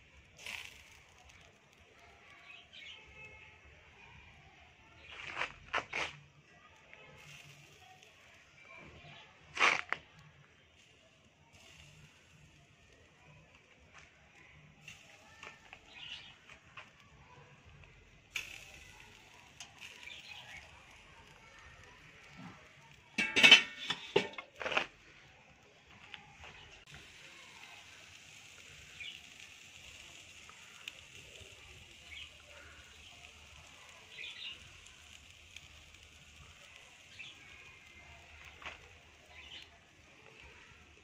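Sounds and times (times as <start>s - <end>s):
wire basket clattering on grill grate: 23.1s - 24.9s.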